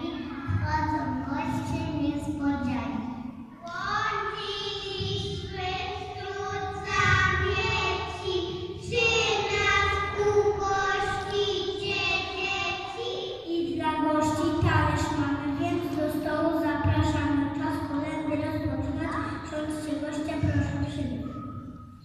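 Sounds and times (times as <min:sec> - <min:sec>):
children singing: 0:03.6 - 0:13.4.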